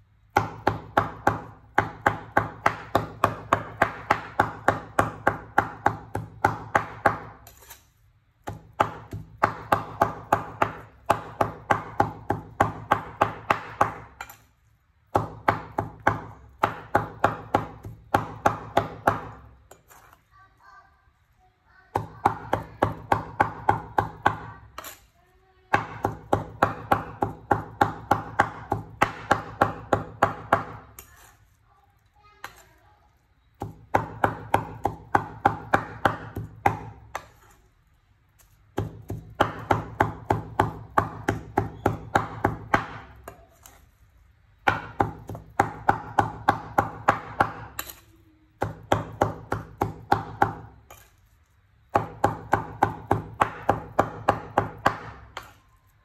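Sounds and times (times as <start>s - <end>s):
cleaver chopping on wooden board: 0.3s - 7.4s, 8.4s - 14.4s, 15.1s - 19.5s, 22.0s - 25.0s, 25.7s - 31.0s, 33.6s - 37.5s, 38.8s - 43.8s, 44.6s - 48.0s, 48.6s - 51.1s, 51.9s - 55.6s.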